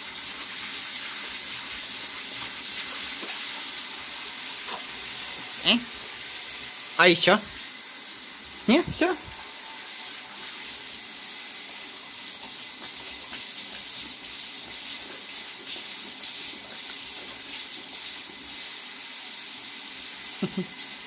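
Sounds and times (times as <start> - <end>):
shower spraying into bathtub: 0.0 - 21.0
dog lapping water: 11.6 - 18.6.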